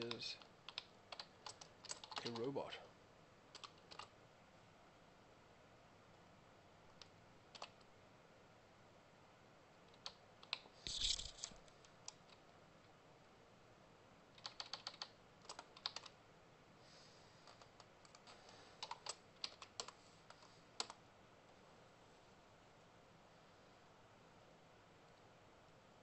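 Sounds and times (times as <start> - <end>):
computer keyboard typing: 0.0 - 2.5, 3.5 - 4.1, 7.0 - 7.9, 9.9 - 12.4, 14.3 - 16.2, 17.4 - 21.0.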